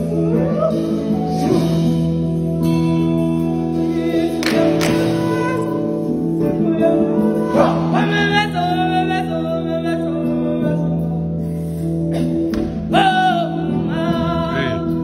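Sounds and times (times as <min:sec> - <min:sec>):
solo voice singing: 0:00.0 - 0:15.0
choir singing: 0:03.7 - 0:09.4.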